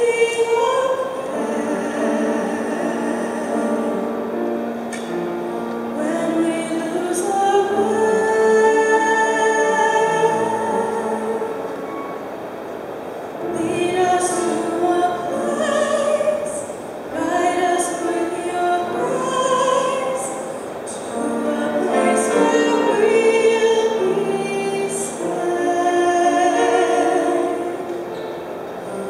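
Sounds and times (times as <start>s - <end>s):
woman singing a ballad: 0.0s - 5.2s, 5.9s - 11.6s, 13.4s - 28.1s
grand piano accompaniment: 0.0s - 29.0s.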